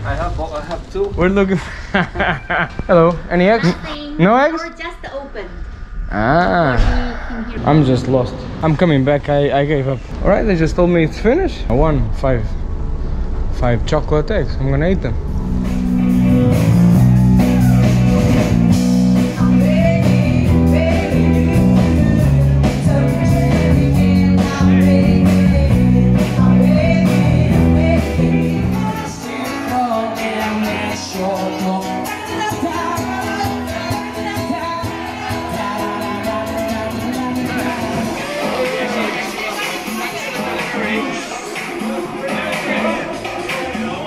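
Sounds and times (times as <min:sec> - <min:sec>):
song with guitar and bass: 0:15.1 - 0:44.0.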